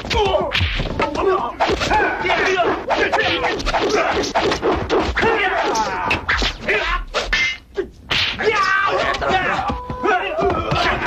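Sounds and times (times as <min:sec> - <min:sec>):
whacks and slaps: 0:00.0 - 0:08.6
people shouting and grunting: 0:00.0 - 0:11.0.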